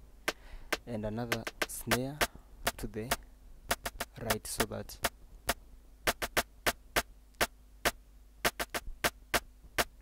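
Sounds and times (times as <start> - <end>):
faint mains hum: 0.0 - 10.0
rim-shot and snare drum hits: 0.3 - 2.8, 3.7 - 4.4, 5.5 - 10.0.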